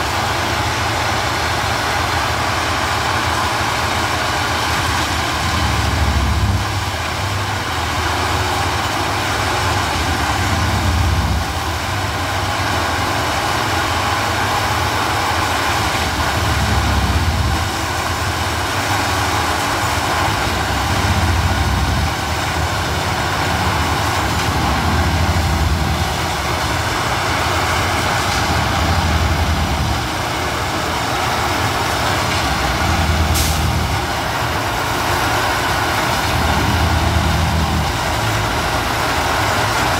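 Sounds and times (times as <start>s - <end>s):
low tamping surges: 0.0s - 39.9s
tamping machine engine running: 0.0s - 39.9s
hiss of air: 33.1s - 33.9s.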